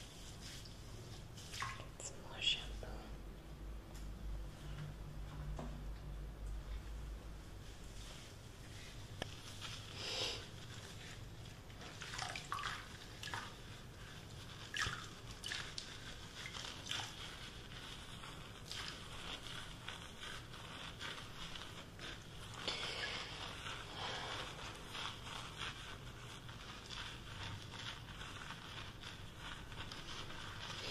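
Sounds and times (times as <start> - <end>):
hands working through wet hair: 0.0 - 2.2, 7.6 - 30.9
water sloshing and dripping: 0.5 - 2.1, 11.8 - 13.7, 14.6 - 17.4.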